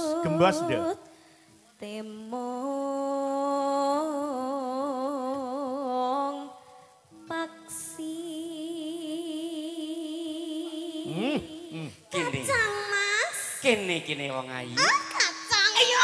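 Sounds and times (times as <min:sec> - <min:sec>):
singer breathing: 0:01.0 - 0:01.6
person singing solo: 0:10.3 - 0:12.9.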